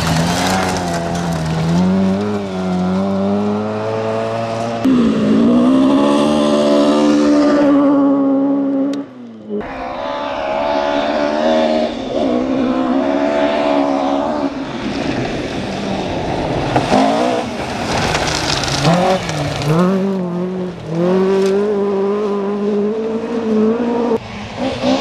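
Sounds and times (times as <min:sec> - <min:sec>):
rally car engines revving: 0:00.0 - 0:25.0
gravel hiss under tyres: 0:14.2 - 0:21.5.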